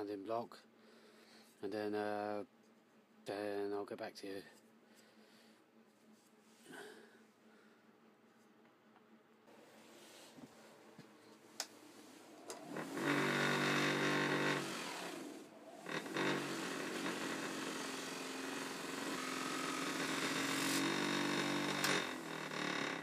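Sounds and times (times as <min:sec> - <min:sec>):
bench grinder motor hum: 0:12.5 - 0:23.0.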